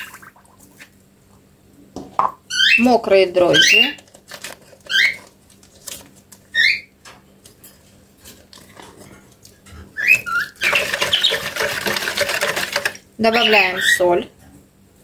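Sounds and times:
whisk beating in plastic bowl: 0:10.2 - 0:13.9.

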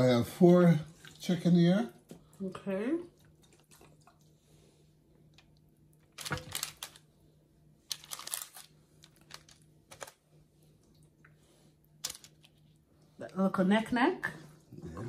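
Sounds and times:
low steady hum: 0:00.0 - 0:15.0
paper crinkling: 0:06.0 - 0:07.1, 0:07.9 - 0:10.2, 0:12.0 - 0:12.6.

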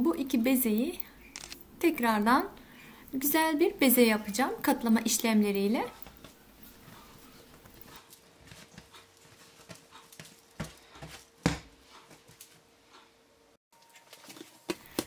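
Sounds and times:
faint steady hum: 0:00.0 - 0:13.6
dough thump on mat: 0:10.6 - 0:11.7.

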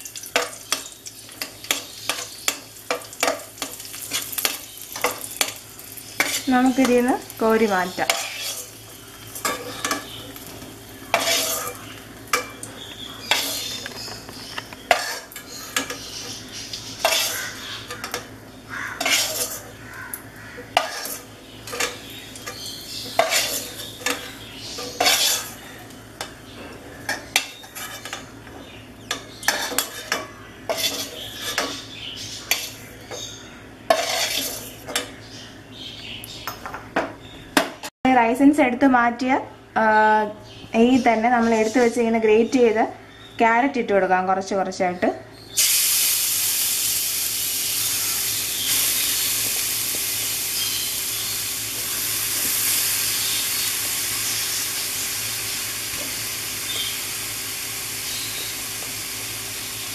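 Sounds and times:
ghee sizzling: 0:00.0 - 0:35.6, 0:45.5 - 0:59.9
metal spoon scraping a pan: 0:00.4 - 0:07.1, 0:07.9 - 0:10.4, 0:11.1 - 0:13.8, 0:14.4 - 0:18.3, 0:18.9 - 0:19.8, 0:20.6 - 0:25.6, 0:27.0 - 0:28.3, 0:29.1 - 0:31.8, 0:32.4 - 0:33.3, 0:33.9 - 0:35.1.

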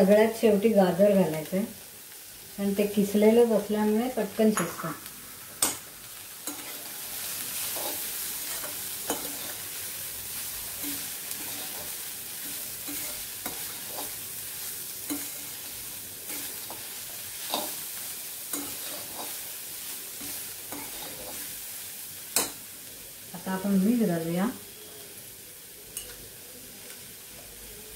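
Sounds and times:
vegetables sizzling in a pan: 0:00.0 - 0:27.9
spatula scraping and clinking on pan: 0:05.6 - 0:07.0, 0:07.6 - 0:09.8, 0:10.7 - 0:14.2, 0:15.0 - 0:17.9, 0:18.5 - 0:19.5, 0:20.2 - 0:21.5, 0:22.4 - 0:22.6.

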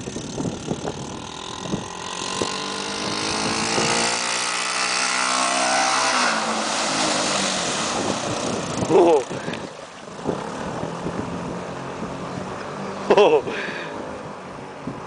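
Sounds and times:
three-wheeler engine revving: 0:00.0 - 0:15.0
vehicle splashing through water: 0:02.3 - 0:14.1.

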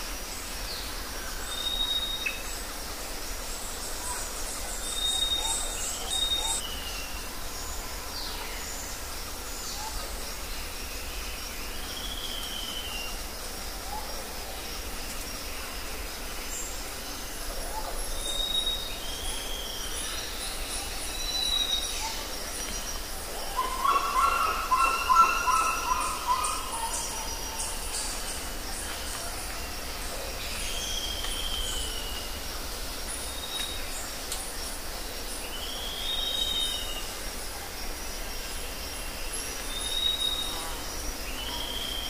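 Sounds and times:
birds whistling and calling: 0:23.5 - 0:28.1.

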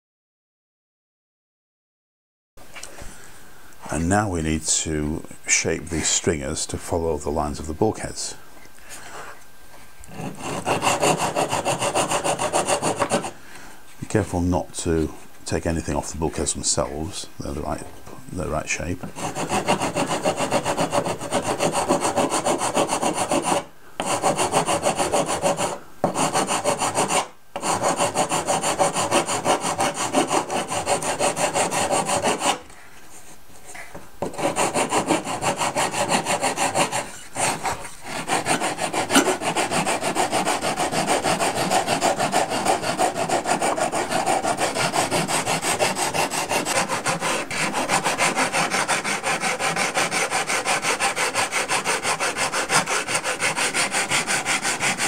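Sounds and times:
sanding block rasping on wood: 0:10.2 - 0:13.3, 0:19.2 - 0:32.6, 0:34.2 - 0:55.0.

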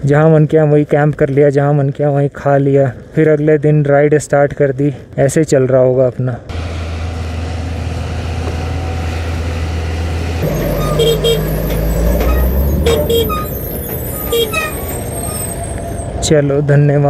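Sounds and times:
diesel truck engine rumbling: 0:06.5 - 0:16.8
horn short double beeps: 0:10.4 - 0:16.1.

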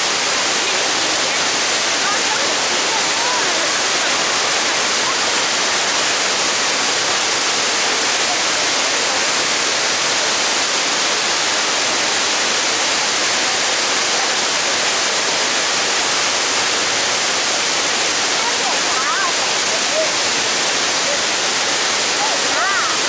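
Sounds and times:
water rushing through spillway: 0:00.0 - 0:23.0.

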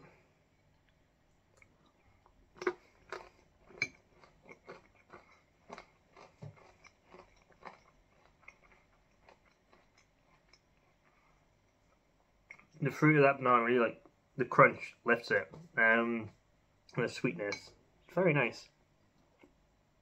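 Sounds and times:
crunchy food being chewed: 0:00.6 - 0:12.8.

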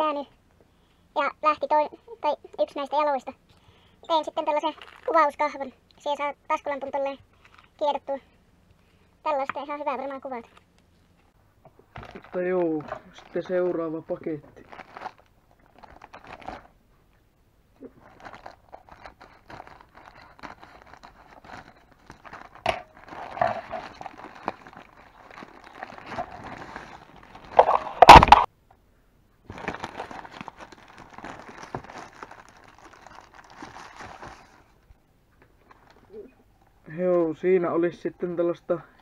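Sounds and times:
plastic bag crinkling: 0:04.2 - 0:05.4, 0:11.9 - 0:16.7, 0:17.8 - 0:28.5, 0:29.4 - 0:34.8
plastic tearing: 0:04.6 - 0:05.2, 0:14.6 - 0:16.7, 0:17.9 - 0:28.5, 0:29.5 - 0:34.7.

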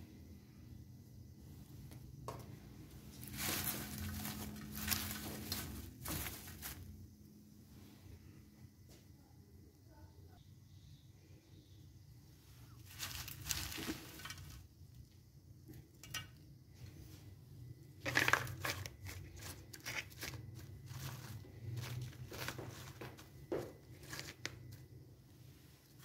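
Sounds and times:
crunchy scraping of fried potatoes: 0:01.6 - 0:07.1, 0:12.6 - 0:26.0
paper crinkling: 0:03.1 - 0:06.9, 0:12.8 - 0:14.6, 0:18.0 - 0:24.9.

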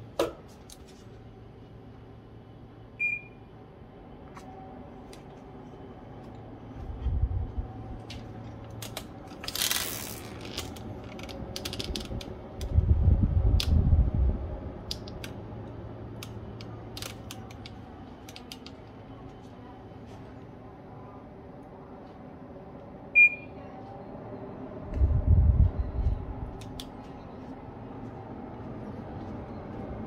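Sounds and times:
air conditioner fan humming: 0:00.0 - 0:30.0
short beep: 0:23.2 - 0:23.5.

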